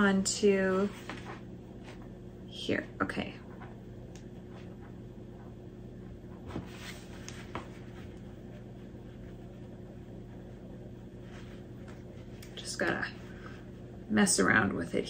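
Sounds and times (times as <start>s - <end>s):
steady low hum: 0.0s - 15.0s
soft rustles and taps of handling: 6.3s - 8.3s.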